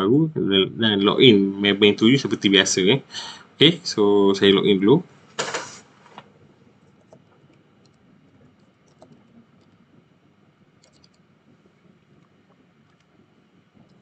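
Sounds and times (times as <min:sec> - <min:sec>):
short burst of noise: 0:05.3 - 0:06.2
computer keyboard keystrokes: 0:10.8 - 0:11.2.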